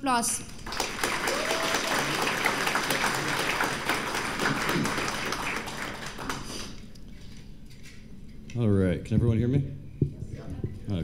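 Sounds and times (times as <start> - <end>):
audience applause: 0.6 - 6.8.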